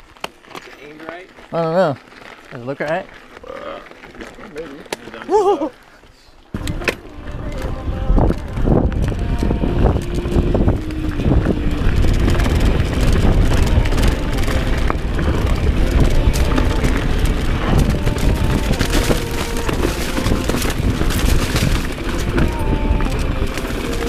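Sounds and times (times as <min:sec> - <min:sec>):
bike clicks and rattles: 0:00.0 - 0:06.0, 0:06.6 - 0:24.0
tyres on dirt: 0:00.0 - 0:24.0
wind buffeting microphone: 0:06.6 - 0:24.0.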